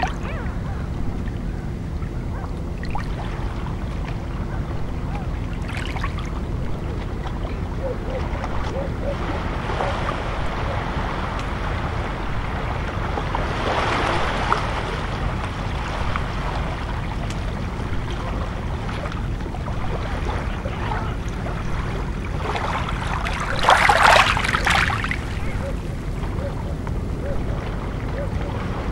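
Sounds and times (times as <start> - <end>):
low rumble: 0.0 - 28.9
water lapping on pebble shore: 8.2 - 26.8.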